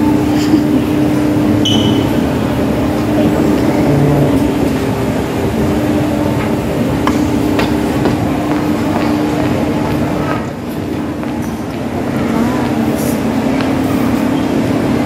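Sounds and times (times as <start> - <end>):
escalator rumble and hum: 0.0 - 15.0.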